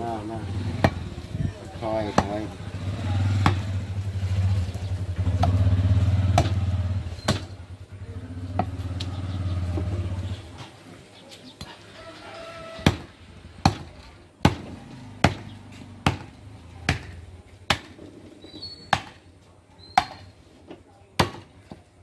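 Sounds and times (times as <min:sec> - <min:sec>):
cleaver chopping into wooden block: 0:03.4 - 0:03.7, 0:06.3 - 0:06.6, 0:12.8 - 0:16.3.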